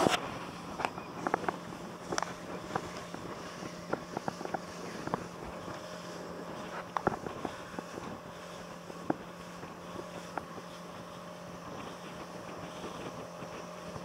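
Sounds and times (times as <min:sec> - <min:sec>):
outboard motor running: 0:00.0 - 0:14.0
wind on microphone: 0:00.0 - 0:14.0.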